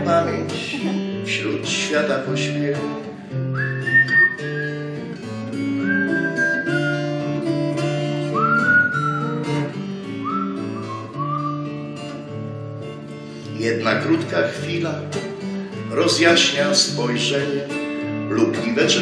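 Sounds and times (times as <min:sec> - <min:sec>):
acoustic guitar chords: 0:00.0 - 0:19.0
whistled melody: 0:03.4 - 0:07.4, 0:08.2 - 0:11.9.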